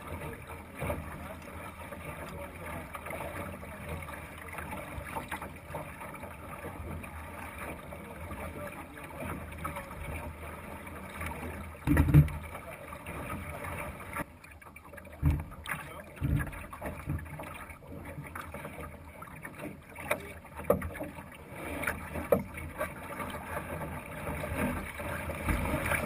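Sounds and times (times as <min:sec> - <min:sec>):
water washing along boat hull: 0:00.0 - 0:26.0
faint boat knocks: 0:11.2 - 0:13.5, 0:15.2 - 0:18.8, 0:21.8 - 0:23.0, 0:23.6 - 0:26.0.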